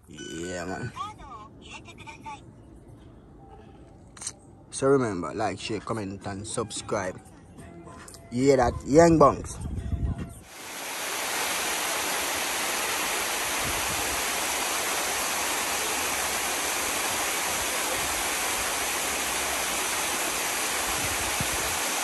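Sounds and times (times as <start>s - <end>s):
waterfall rushing over rocks: 10.5s - 22.0s.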